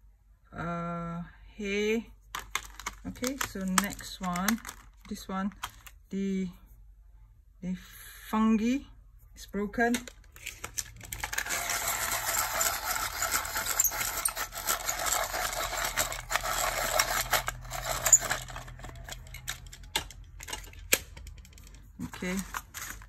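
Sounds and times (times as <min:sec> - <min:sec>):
pencil sharpener scraping: 0:11.2 - 0:19.9.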